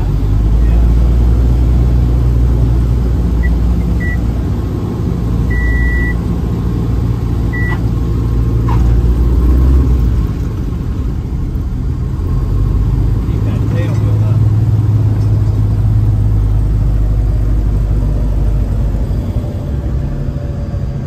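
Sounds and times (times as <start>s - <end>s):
airplane engine and propeller rumble: 0.0s - 21.0s
short high beeps: 5.5s - 6.2s, 7.6s - 7.8s.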